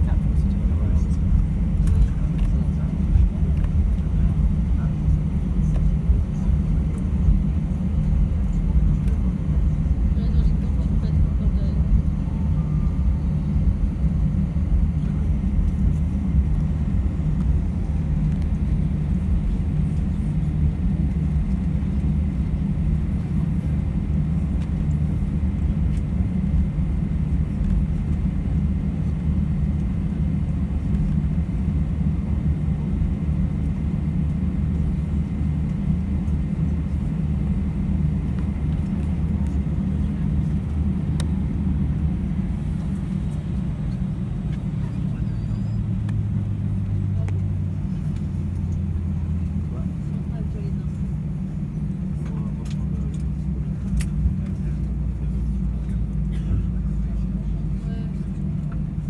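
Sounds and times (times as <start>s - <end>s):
aircraft cabin engine rumble: 0.0s - 59.0s.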